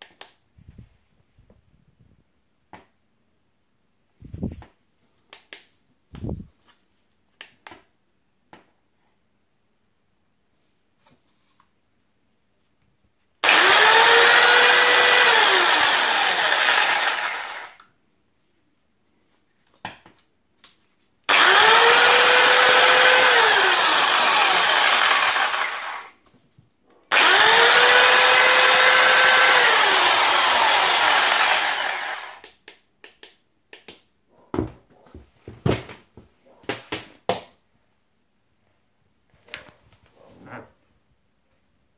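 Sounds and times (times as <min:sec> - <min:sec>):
jigsaw motor running: 0:13.4 - 0:17.8, 0:21.3 - 0:26.1, 0:27.1 - 0:32.4.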